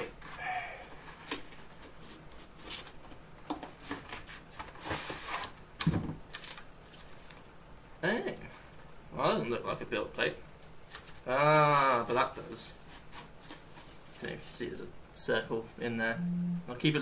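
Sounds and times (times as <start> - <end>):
cardboard rustling and scraping: 3.7 - 5.6.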